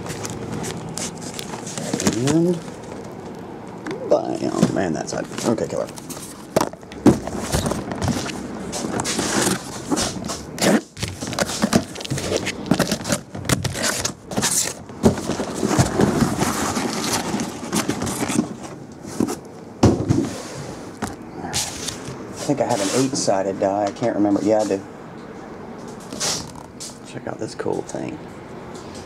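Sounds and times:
cardboard scraping and rustling: 0.0s - 3.2s, 4.3s - 23.4s
boxes knocking on table: 19.8s - 20.3s.

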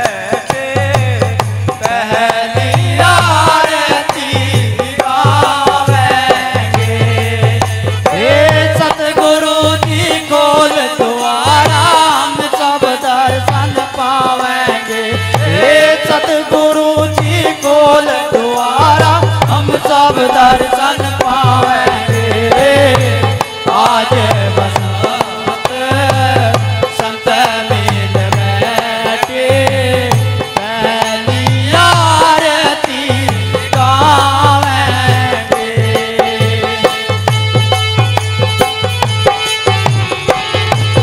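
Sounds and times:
hand percussion: 0.0s - 41.0s
men singing devotional song: 0.0s - 41.0s.

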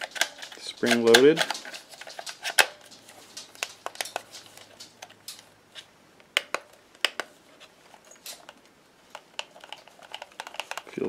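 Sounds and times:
plastic clicks and knocks: 6.3s - 7.3s.

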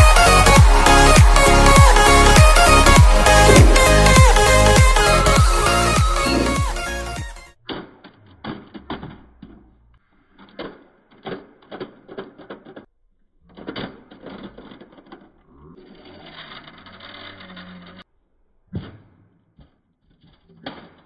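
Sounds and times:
toy car rasping on concrete: 0.0s - 7.4s, 13.5s - 18.0s.

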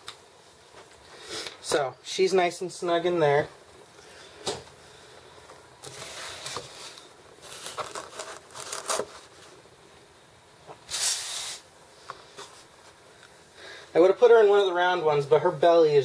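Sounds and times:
plastic crinkling against foam: 5.8s - 9.6s.

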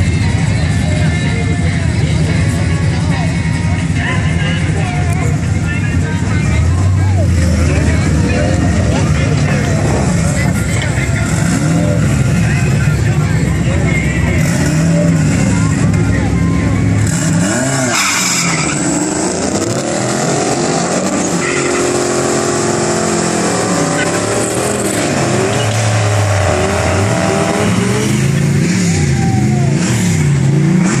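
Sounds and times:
pickup engine accelerating: 0.0s - 31.0s
tyre squeal: 17.6s - 19.3s, 25.4s - 26.6s.

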